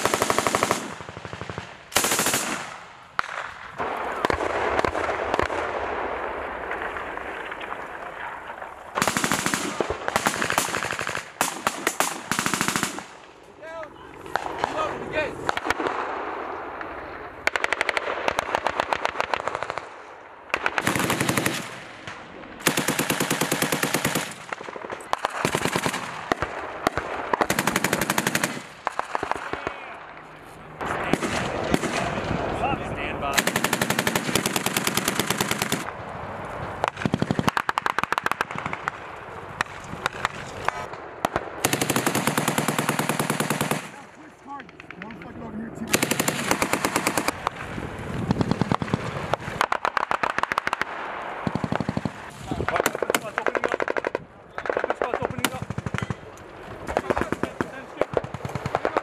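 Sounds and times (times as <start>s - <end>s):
machine gun automatic fire: 0.0s - 2.7s, 9.0s - 13.1s, 20.5s - 21.8s, 22.6s - 29.6s, 33.3s - 35.9s, 41.6s - 44.0s, 45.9s - 47.6s.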